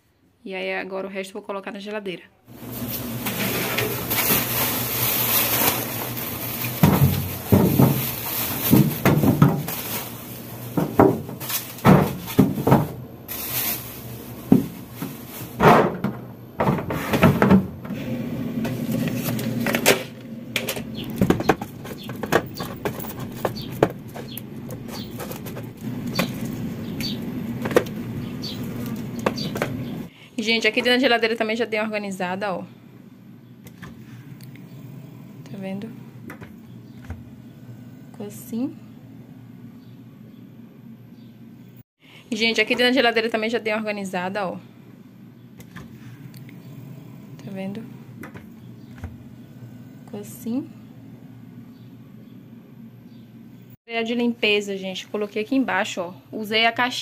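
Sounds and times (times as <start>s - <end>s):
plastic bags rustling: 2.5s - 17.8s, 20.8s - 30.1s
groceries knocking in plastic drawer: 5.7s - 13.0s, 14.4s - 17.9s, 20.6s - 30.0s.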